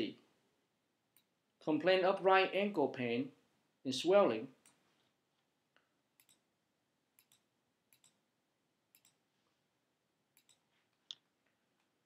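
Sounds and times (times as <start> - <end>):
computer mouse clicks: 6.2 - 6.5, 7.2 - 8.2, 8.9 - 9.2, 10.4 - 11.2.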